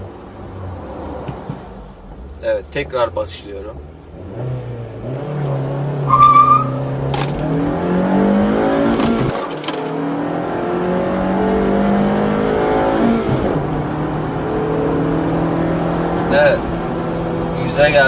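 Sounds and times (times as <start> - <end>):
car engine accelerating: 0.4 - 18.0
tyre squeal: 6.1 - 6.9.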